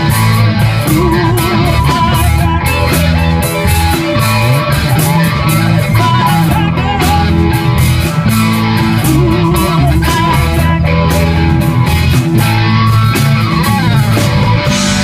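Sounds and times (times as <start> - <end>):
bass guitar: 0.0 - 15.0
drum kit beat: 0.0 - 15.0
electric guitars: 0.0 - 15.0
woman singing into microphone: 0.8 - 3.0, 5.8 - 7.5, 9.0 - 11.4.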